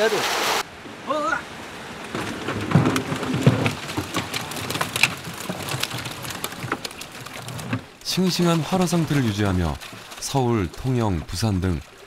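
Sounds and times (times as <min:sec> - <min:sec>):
fish splashing in water: 0:03.1 - 0:08.0, 0:08.6 - 0:10.8.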